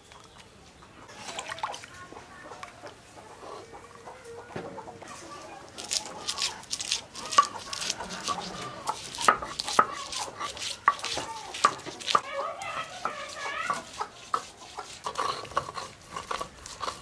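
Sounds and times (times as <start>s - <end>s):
chickens clucking: 0.2s - 17.0s
scraping and knocking: 5.9s - 17.0s.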